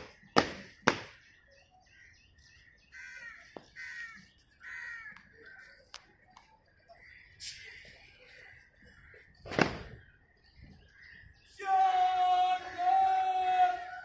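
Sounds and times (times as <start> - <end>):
crows cawing: 2.9 - 5.7, 8.5 - 9.4.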